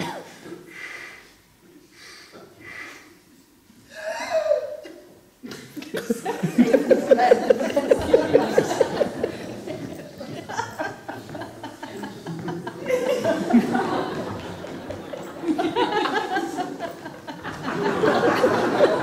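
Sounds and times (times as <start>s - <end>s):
rhythmic laugh: 5.5s - 19.0s
audience laughing: 5.8s - 19.0s.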